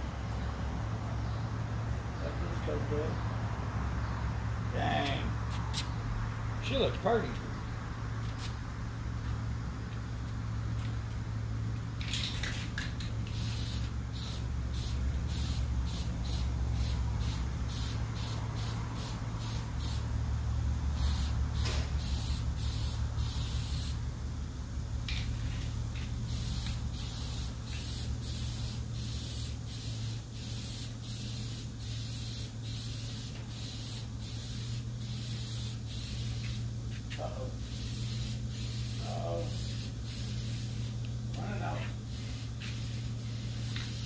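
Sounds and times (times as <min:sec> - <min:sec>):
steady low hum: 0:00.0 - 0:44.0
spray-paint can hissing: 0:12.0 - 0:20.1, 0:20.9 - 0:24.0, 0:25.1 - 0:41.2, 0:41.9 - 0:44.0.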